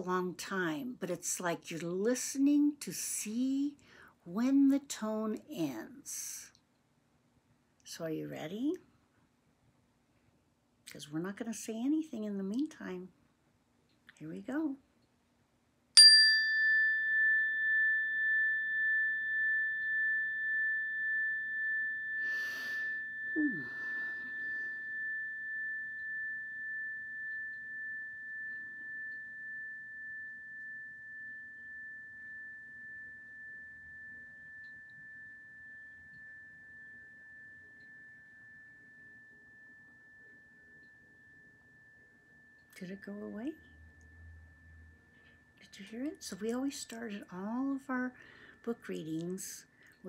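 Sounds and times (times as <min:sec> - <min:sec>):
metal chime ringing: 0:16.0 - 0:46.9.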